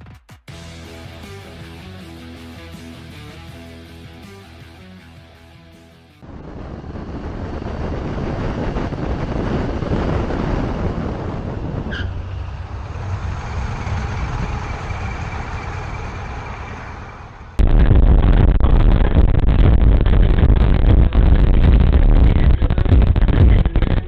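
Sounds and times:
highway road noise: 6.2s - 17.6s.

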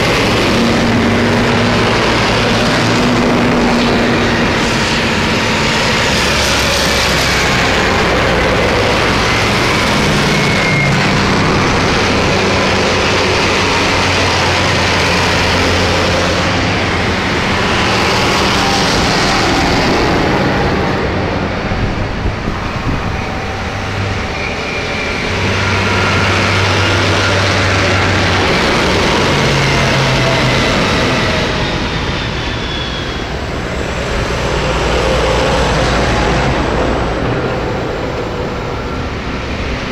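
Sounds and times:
diesel tractors driving past: 0.0s - 39.9s.

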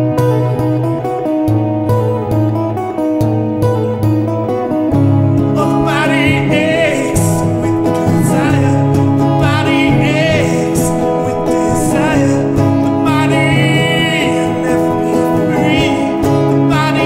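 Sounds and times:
electric guitar strumming: 0.0s - 17.0s
man singing: 5.4s - 17.0s.

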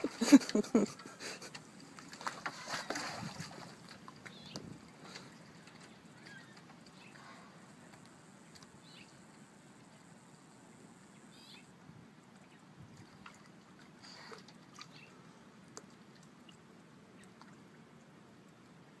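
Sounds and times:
faint clicks: 7.9s - 9.4s.

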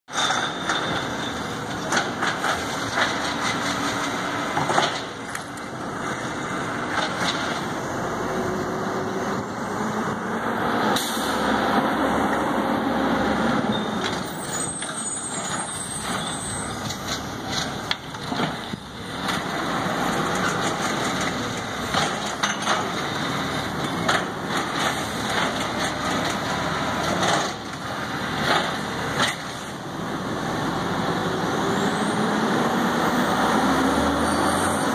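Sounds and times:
knocks and clanks: 0.1s - 5.5s, 20.1s - 23.1s
garbage truck diesel engine: 0.1s - 34.9s.

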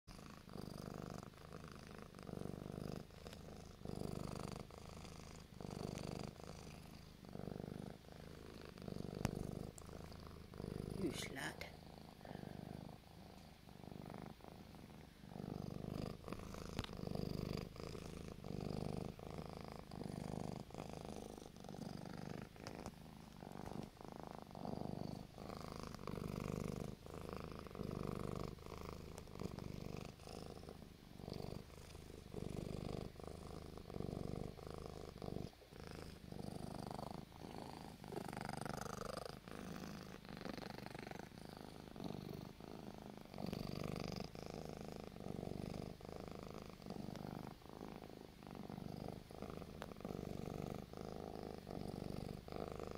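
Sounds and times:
cat purring: 0.0s - 52.9s.

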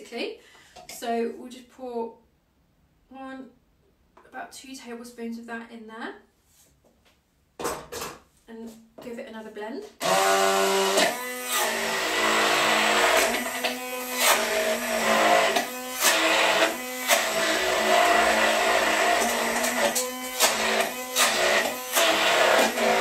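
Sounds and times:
blender running: 10.0s - 23.0s.

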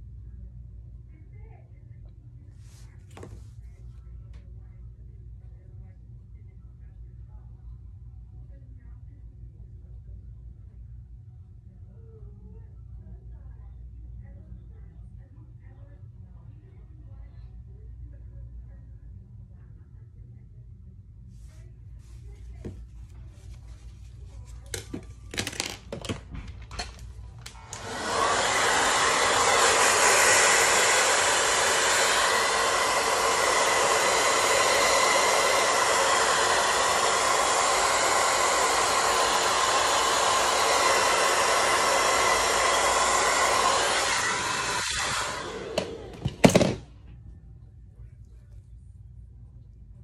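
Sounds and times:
hair dryer running: 26.6s - 46.9s.

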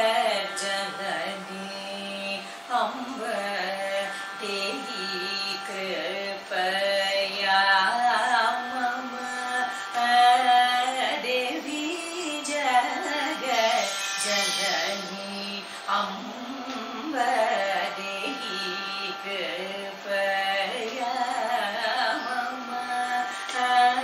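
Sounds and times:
woman singing solo: 0.0s - 24.0s.

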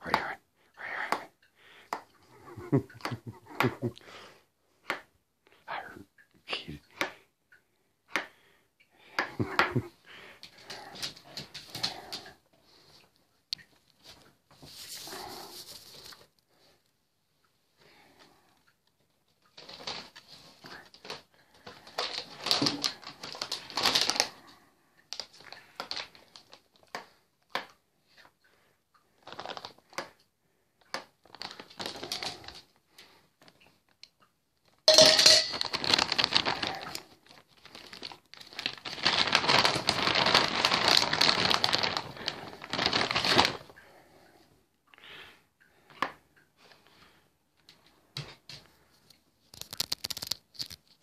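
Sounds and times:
plastic bag crinkling: 19.6s - 24.5s, 25.1s - 26.9s, 29.2s - 29.9s, 31.2s - 32.6s, 34.8s - 43.8s, 49.4s - 51.0s.

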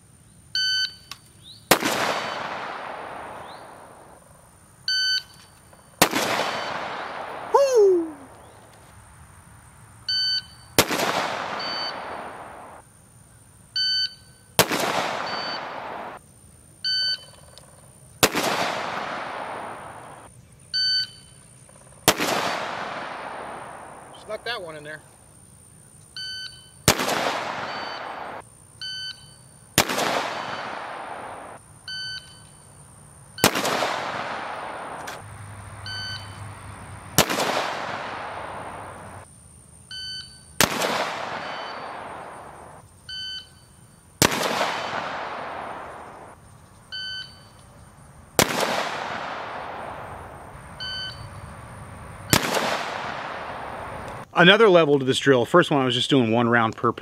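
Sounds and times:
rifle shots echoing: 1.7s - 4.2s, 5.9s - 8.3s, 10.7s - 12.8s, 14.6s - 16.2s, 18.2s - 20.3s, 22.0s - 25.0s, 26.8s - 28.4s, 29.8s - 31.6s, 33.4s - 36.4s, 37.1s - 39.2s, 40.6s - 42.8s, 44.2s - 46.4s, 48.4s - 54.2s
shot timer beeps: 11.5s - 12.8s, 15.2s - 15.8s, 27.6s - 29.5s, 31.9s - 32.6s, 35.9s - 36.4s, 41.4s - 42.0s, 47.0s - 47.6s, 50.8s - 51.3s.

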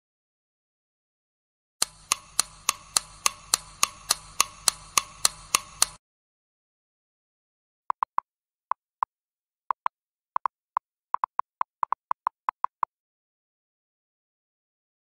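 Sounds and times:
keyboard typing clicks: 1.8s - 6.0s, 11.2s - 12.9s.

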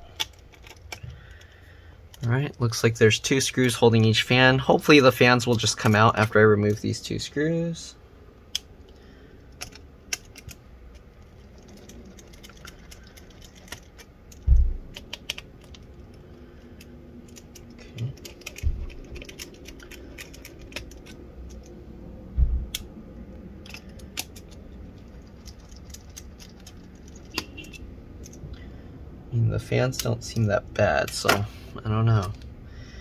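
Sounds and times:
dull low thumps: 14.4s - 14.9s, 18.6s - 19.1s, 22.3s - 22.8s
screwdriver clicks and ticks: 23.6s - 24.6s.

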